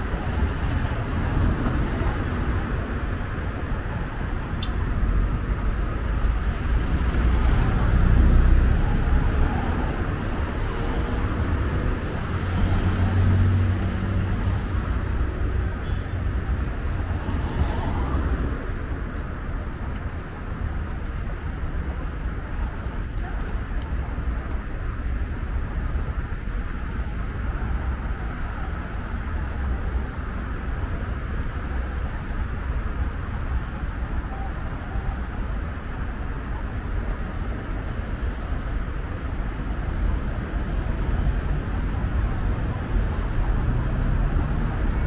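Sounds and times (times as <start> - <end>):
low rumble of traffic: 0.0 - 45.0
cars driving past: 4.4 - 19.1.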